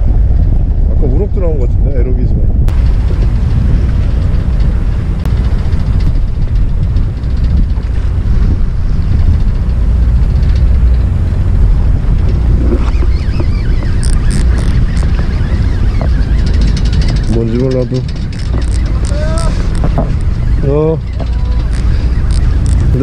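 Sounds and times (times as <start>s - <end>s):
wind buffeting microphone: 0.0s - 23.0s
fishing reel clicks: 13.9s - 15.2s, 21.5s - 23.0s.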